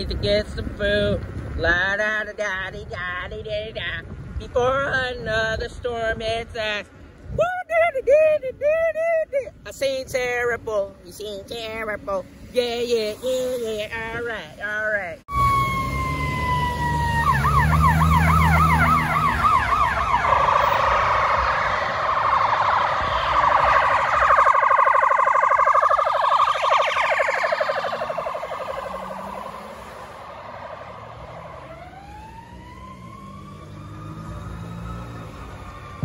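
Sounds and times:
emergency siren wailing and yelping: 15.3s - 36.0s.

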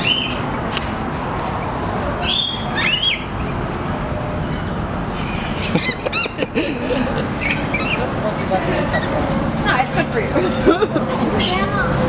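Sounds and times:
lorikeets squawking: 0.0s - 0.6s, 1.6s - 3.6s, 4.4s - 9.4s, 11.4s - 11.8s.

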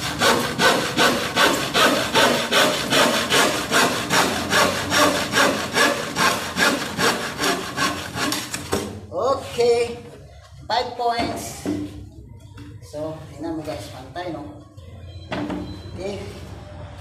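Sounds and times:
hand saw cutting wood: 0.0s - 8.7s.

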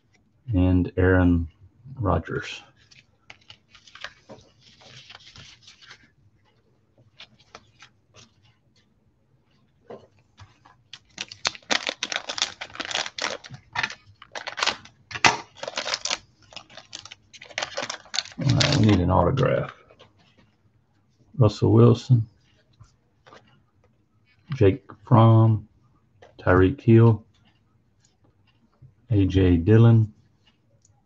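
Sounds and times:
cards and packaging rustling: 2.3s - 8.9s, 9.5s - 20.5s, 23.2s - 23.6s
foil wrapper tearing and crinkling: 11.0s - 19.0s.

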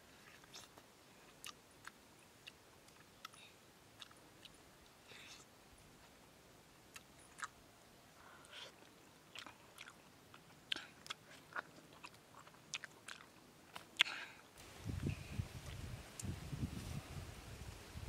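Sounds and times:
person chewing soft fruit: 0.2s - 5.5s, 6.9s - 7.6s, 8.3s - 16.3s.

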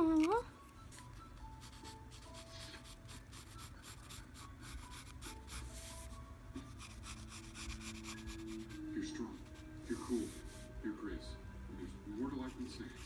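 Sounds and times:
pencil scratching on paper: 1.5s - 10.6s.

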